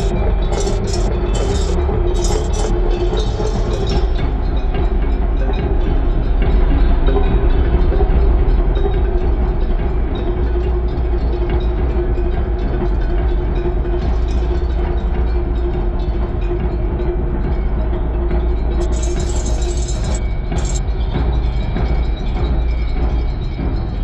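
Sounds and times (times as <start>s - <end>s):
steady droning tone: 0.0s - 6.3s, 18.2s - 20.8s.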